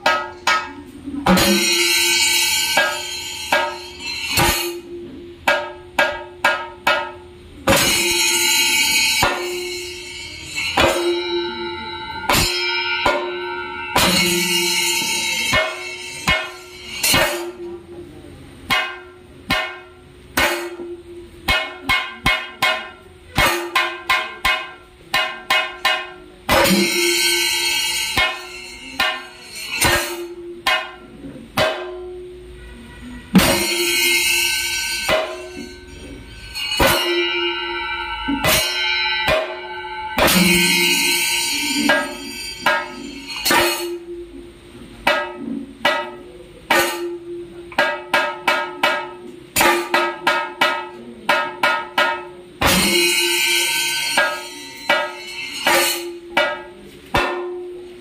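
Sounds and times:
drums struck with sticks: 0:00.0 - 0:58.0
ringing hand cymbals: 0:00.0 - 0:58.0.

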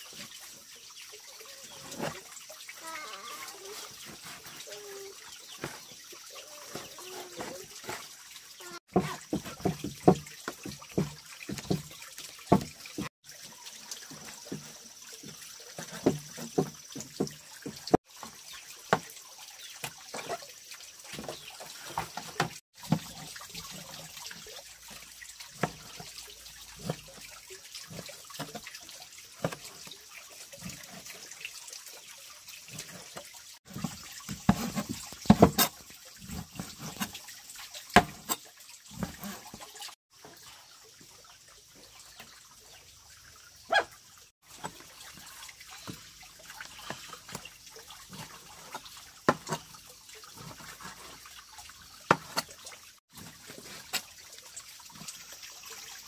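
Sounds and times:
water splashing and trickling: 0:00.0 - 0:56.0.

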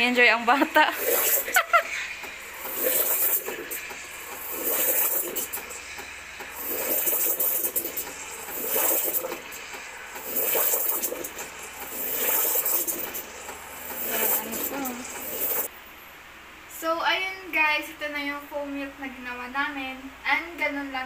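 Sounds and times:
steam jet frothing milk: 0:00.0 - 0:15.7.

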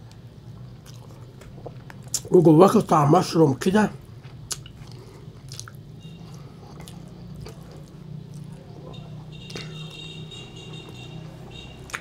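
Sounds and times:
squishy food sounds: 0:04.2 - 0:08.9.

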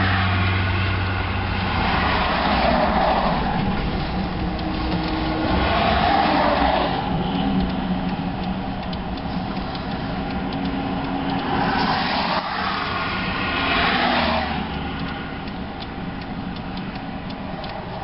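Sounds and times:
vehicle rushing by: 0:00.0 - 0:08.3, 0:09.6 - 0:15.4.

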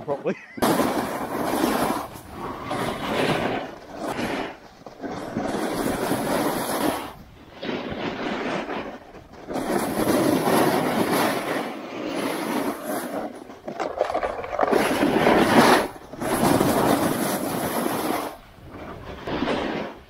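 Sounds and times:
skis scraping on hard snow: 0:00.6 - 0:20.0.

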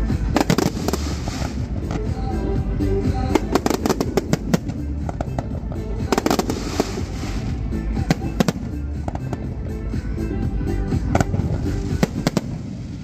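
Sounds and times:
music: 0:00.0 - 0:13.0
firework hissing: 0:00.4 - 0:01.8, 0:06.1 - 0:07.6.

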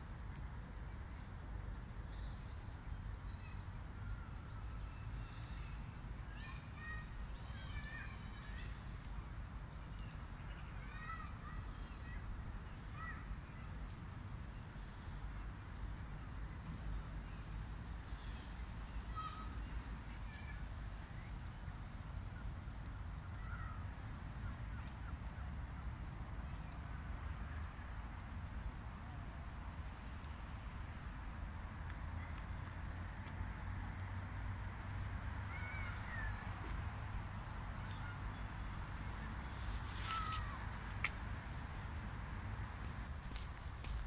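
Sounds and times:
small songbirds chirping: 0:00.3 - 0:09.1, 0:09.7 - 0:32.0, 0:32.6 - 0:44.0
faint hiss: 0:38.0 - 0:41.7.

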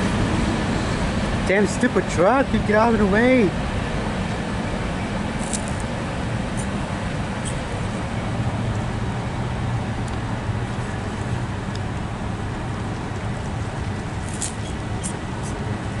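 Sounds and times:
cars on wet pavement: 0:00.0 - 0:16.0
vehicle engines humming: 0:00.0 - 0:16.0.

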